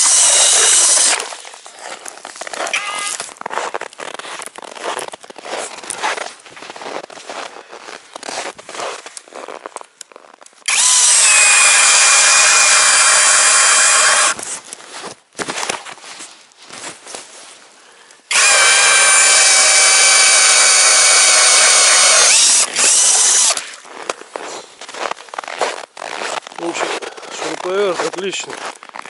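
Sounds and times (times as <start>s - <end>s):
drill motor whine with grinding: 0.0s - 1.2s, 2.7s - 3.2s, 10.7s - 14.4s, 18.3s - 23.6s
handling and scraping: 0.4s - 10.7s, 14.4s - 17.8s.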